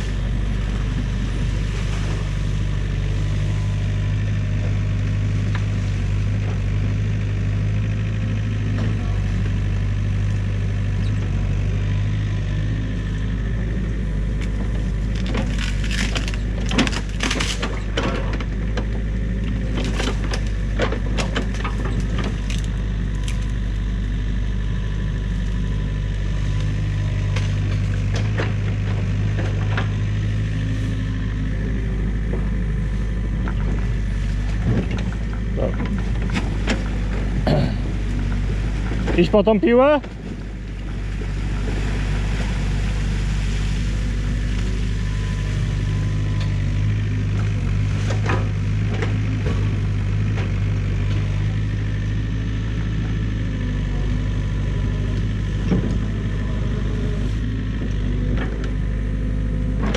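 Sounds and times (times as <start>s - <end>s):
excavator diesel engine running: 0.0s - 59.9s
sticks cracking and snapping: 14.4s - 17.7s.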